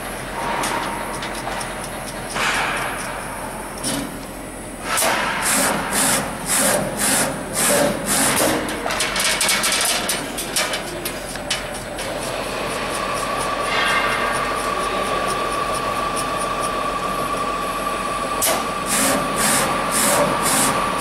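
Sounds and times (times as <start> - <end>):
letter bending machine working: 0.0 - 21.0
fast machine clicking: 5.5 - 11.8.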